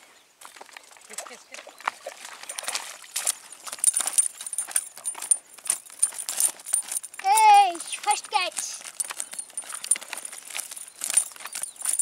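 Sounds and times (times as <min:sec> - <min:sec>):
handling clicks and clatter: 0:02.6 - 0:12.0.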